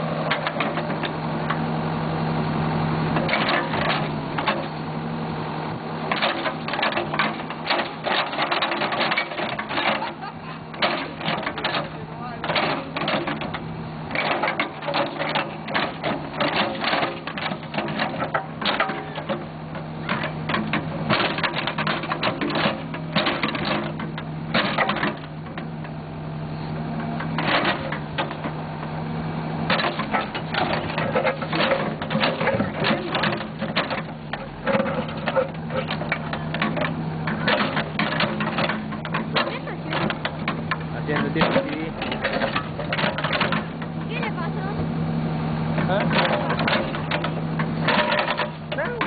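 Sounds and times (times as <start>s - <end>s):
backhoe engine running: 0.0s - 49.0s.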